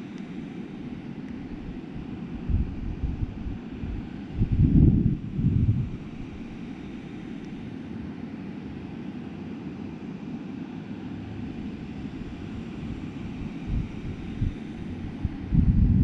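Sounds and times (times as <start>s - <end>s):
wind buffeting microphone: 1.4s - 6.7s, 12.2s - 16.0s.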